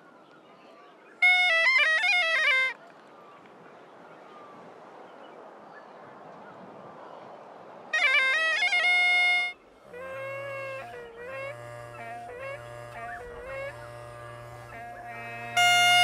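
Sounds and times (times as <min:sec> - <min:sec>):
faint outdoor hiss: 0:00.0 - 0:16.0
bagpipe phrase: 0:01.2 - 0:02.8, 0:08.0 - 0:16.0.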